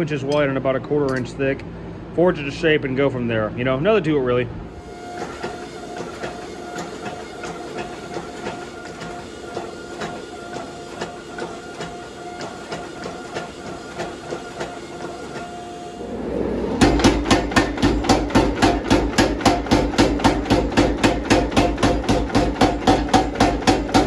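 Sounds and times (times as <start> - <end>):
machine hum: 0.0 - 24.0
power hammer pounding steel: 4.8 - 15.9, 16.8 - 24.0.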